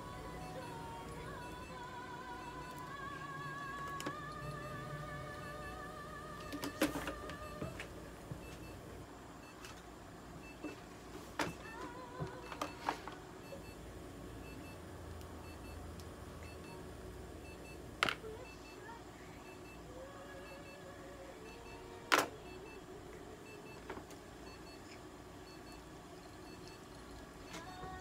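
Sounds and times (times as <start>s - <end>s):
faint electronic beeps: 0.0s - 7.8s, 11.4s - 14.8s, 15.4s - 15.8s, 16.4s - 28.0s
low hum: 0.0s - 9.5s.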